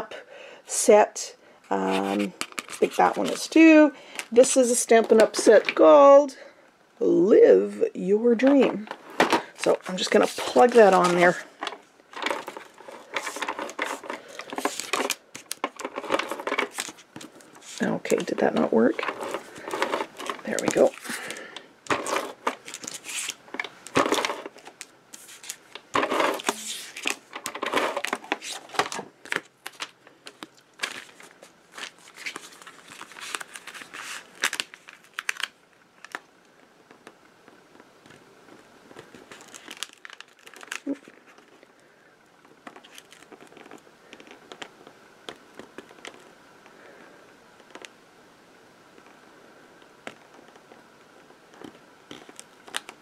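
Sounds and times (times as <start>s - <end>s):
cardstock rustling: 1.7s - 3.6s, 8.4s - 36.2s
paper handling: 1.8s - 3.5s, 9.0s - 36.2s.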